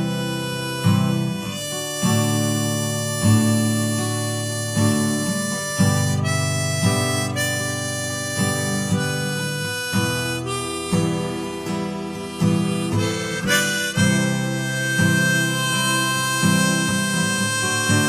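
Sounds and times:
acoustic guitar blues instrumental: 0.0s - 18.0s.

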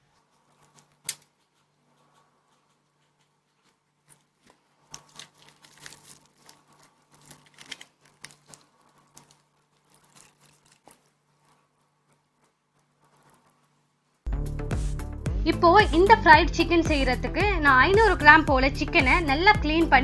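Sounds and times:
fried chicken crust crackling: 0.0s - 14.3s.

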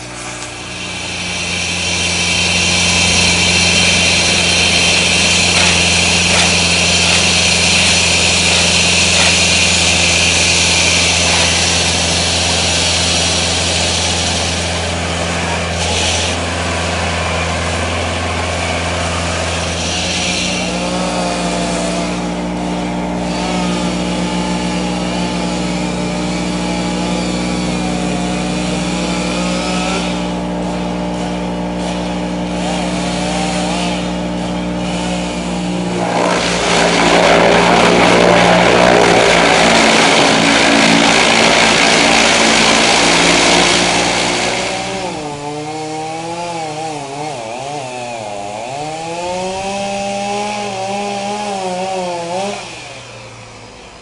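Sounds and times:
saw blade hissing into road: 0.0s - 26.6s, 31.7s - 47.4s
road saw engine running: 0.0s - 54.0s.

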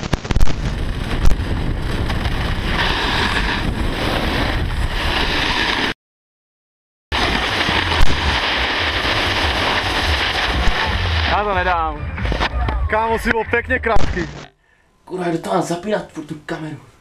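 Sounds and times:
wind rushing over microphone: 0.0s - 6.0s
snowboard sliding over snow: 0.7s - 6.0s, 7.1s - 11.8s.

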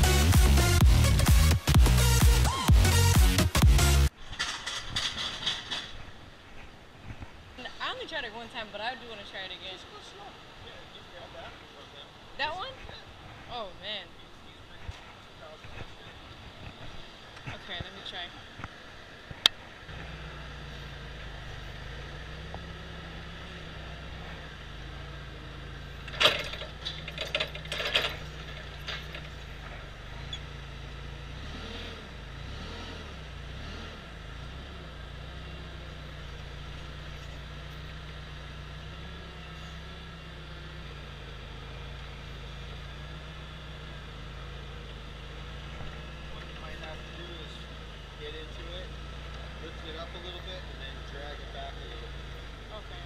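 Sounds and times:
forklift humming: 0.0s - 6.8s, 7.4s - 53.0s
clanks and knocks: 4.2s - 6.2s, 26.0s - 29.9s.

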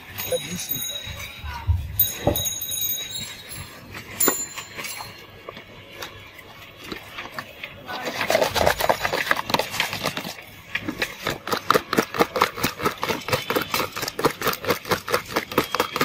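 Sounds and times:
liquid sloshing: 3.9s - 16.0s
plastic churner clattering in liquid: 5.5s - 16.0s.

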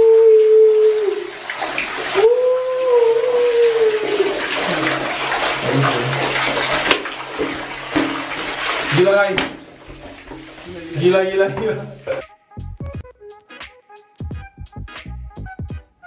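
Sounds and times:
liquid splashing into tub: 0.9s - 12.3s.

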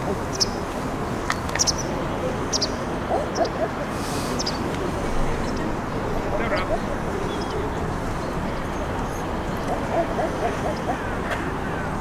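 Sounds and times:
steady background noise: 0.0s - 12.0s
faint low wavering calls: 8.6s - 12.0s.

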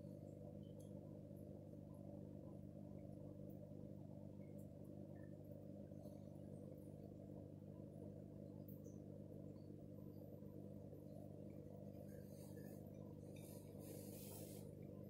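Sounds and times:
faint low hum: 0.0s - 15.0s
soft ticks: 0.6s - 1.0s.

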